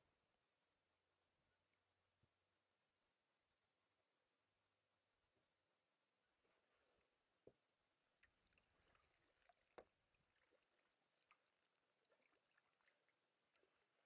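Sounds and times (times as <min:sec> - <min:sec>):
soft ticks and taps: 0:07.4 - 0:14.0
water dripping and splashing: 0:08.2 - 0:14.0.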